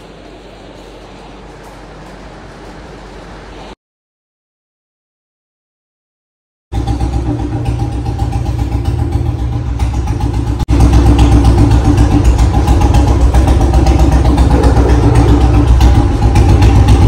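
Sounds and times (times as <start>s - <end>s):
motorcycle engine idling: 6.8s - 17.0s.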